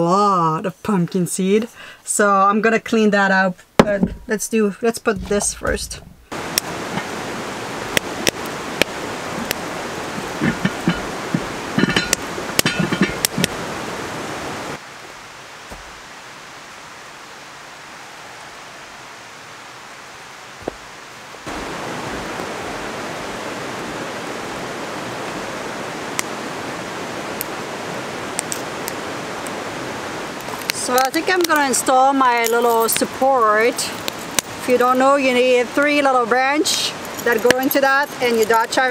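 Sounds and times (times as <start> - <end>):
river running over rocks: 3.7 - 38.9
metal clinks and knocks: 5.2 - 6.3, 10.2 - 13.6, 37.0 - 38.9.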